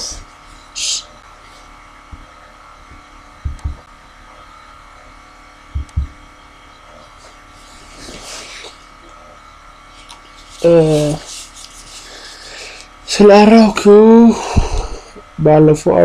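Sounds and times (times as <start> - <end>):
faint background hum: 0.0 - 16.0
thin electrical whine: 0.0 - 16.0
soft low thumps: 2.1 - 3.9, 5.7 - 6.2.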